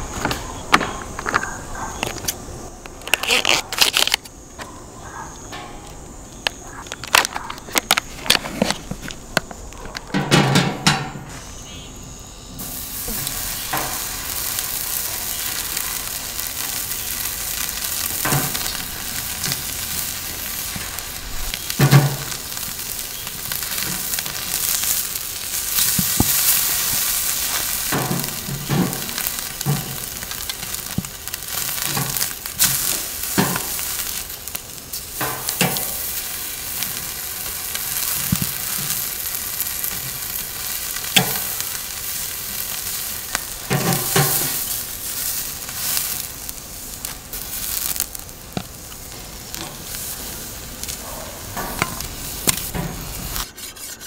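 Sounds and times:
steaks sizzling on a grill: 11.4 - 53.5
knocks on grill grate: 21.8 - 22.3.

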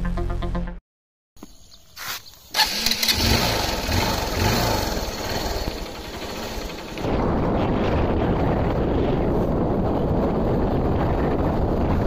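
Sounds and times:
motorcycle engine starting: 2.5 - 8.0.

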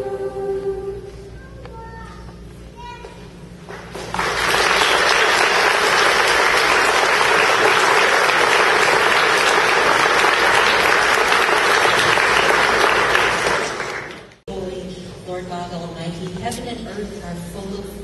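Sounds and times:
audience applauding: 3.7 - 14.4.

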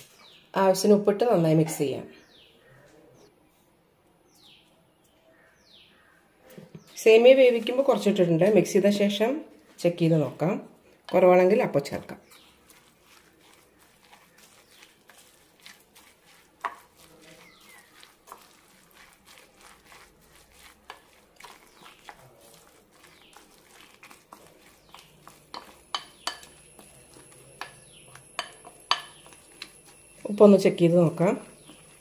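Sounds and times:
spoon squelching scrapes: 11.1 - 32.0.

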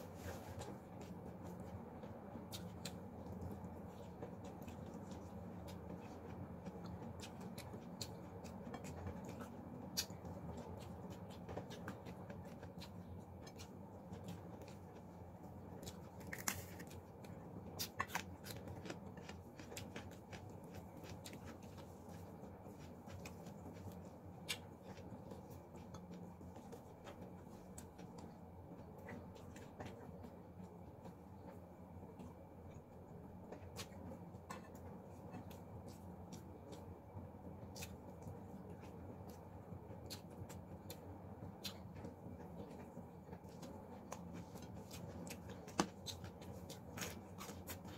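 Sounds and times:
steady low hum: 0.0 - 47.9
chewing clicks and smacks: 0.6 - 15.1.

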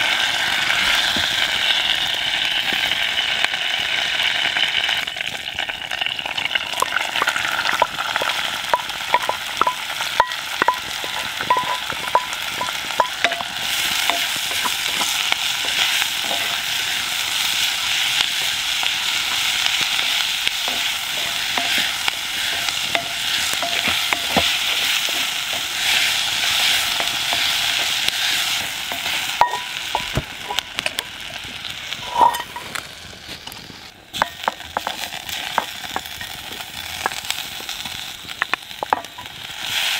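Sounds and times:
onions sizzling in a pot: 0.0 - 39.9
wooden spatula scraping a pot: 8.2 - 30.6, 32.0 - 36.1.

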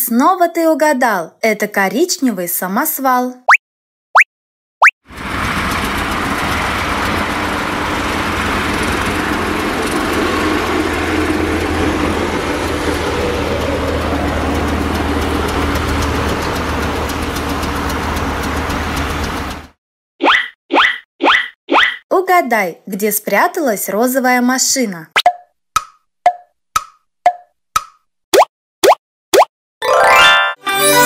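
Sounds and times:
diesel truck engine running: 5.1 - 19.8.

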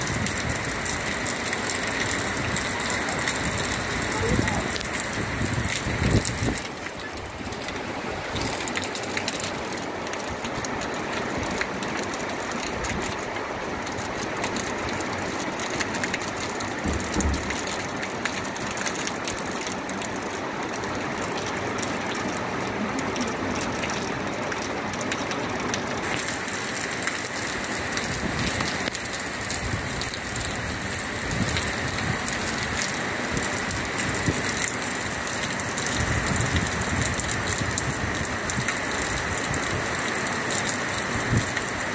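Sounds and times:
heavy rain on leaves and water: 0.0 - 41.9.

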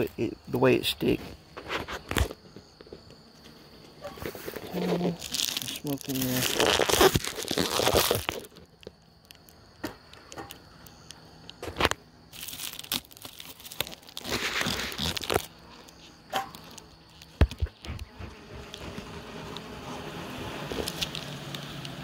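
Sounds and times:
foil crinkling: 4.2 - 9.5, 11.7 - 19.7, 20.6 - 22.0
sharp clicks and cracks: 5.3 - 12.0.

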